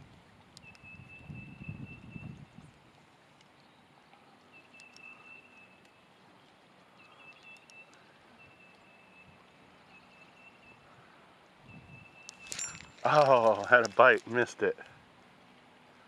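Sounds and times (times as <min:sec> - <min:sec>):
faint ticks: 0:00.4 - 0:00.9, 0:02.7 - 0:08.9, 0:12.2 - 0:15.0.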